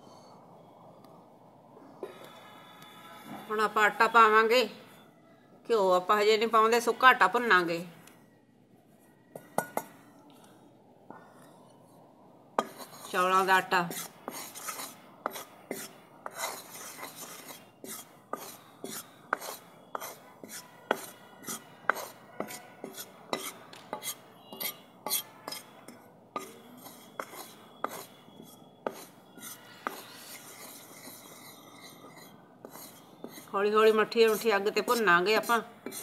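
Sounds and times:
metal ladle scraping flour in pan: 12.6s - 36.0s.

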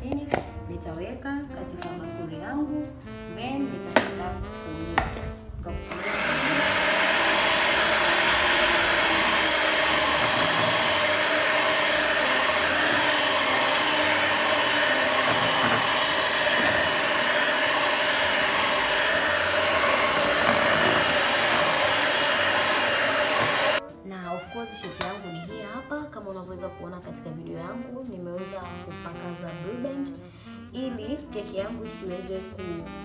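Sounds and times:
electric hand mixer running: 5.9s - 23.8s.

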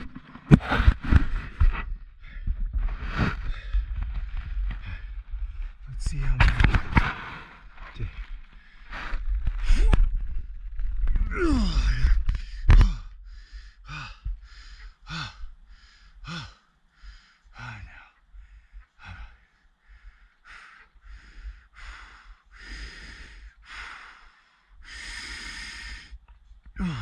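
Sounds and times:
person breathing heavily: 0.0s - 10.5s, 11.2s - 27.0s
voiced sigh: 11.2s - 13.2s, 26.8s - 27.0s.

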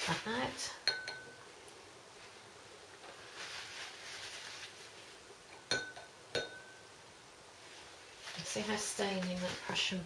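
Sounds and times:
brush scrubbing paper: 3.2s - 5.2s, 8.1s - 10.0s.

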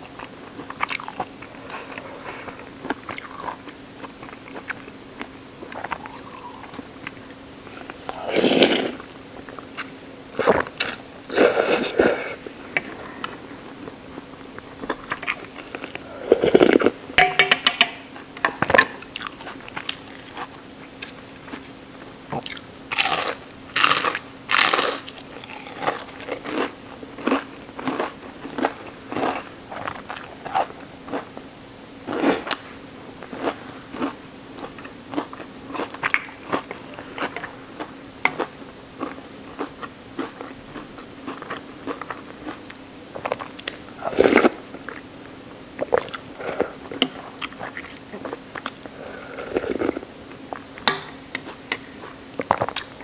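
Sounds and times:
person chewing: 0.1s - 17.0s, 19.0s - 21.7s, 22.3s - 31.3s, 33.2s - 45.1s, 45.8s - 50.8s, 51.4s - 53.0s
slurping noodles: 7.9s - 9.1s, 11.3s - 12.4s, 44.0s - 44.6s, 48.9s - 50.0s.

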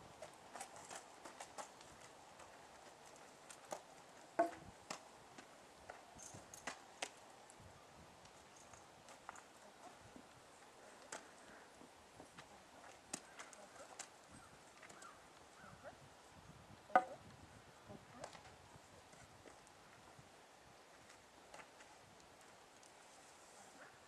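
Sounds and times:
horse hooves on dirt: 0.0s - 15.8s, 18.0s - 23.3s.

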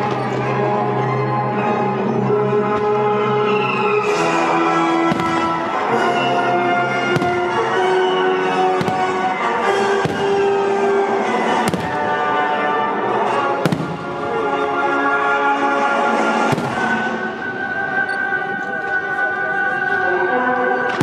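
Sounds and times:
orchestral music: 0.0s - 21.0s
firework shells bursting: 4.1s - 6.3s, 6.9s - 10.7s.

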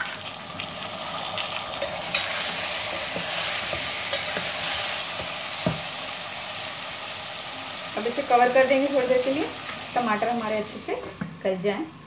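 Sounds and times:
vegetables sizzling in hot oil: 0.0s - 12.0s
metal spoon scraping a pot: 1.8s - 5.0s.

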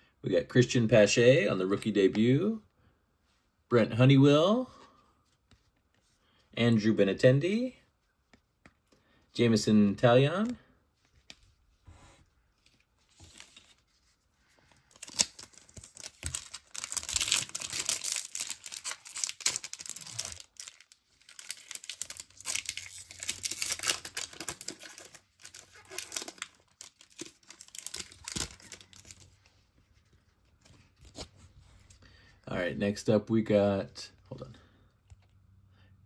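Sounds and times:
wrapper tearing and crinkling: 14.9s - 29.4s.

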